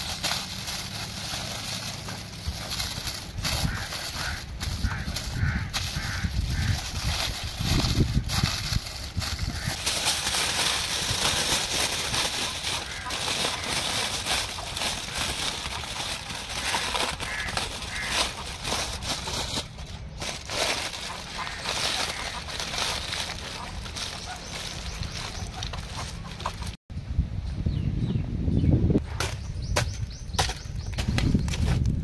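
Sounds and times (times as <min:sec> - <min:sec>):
aluminium foil crinkling: 0:00.0 - 0:26.8.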